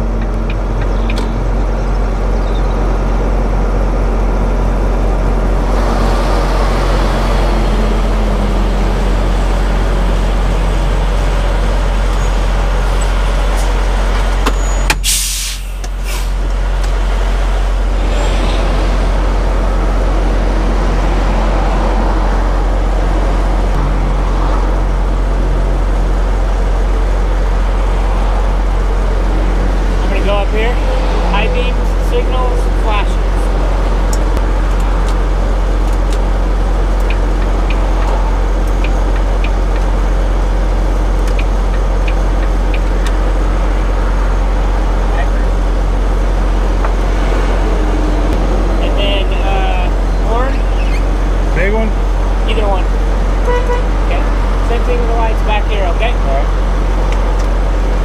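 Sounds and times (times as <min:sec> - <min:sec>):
diesel truck engine running: 0:00.0 - 0:58.0
air brake hiss: 0:15.0 - 0:16.4.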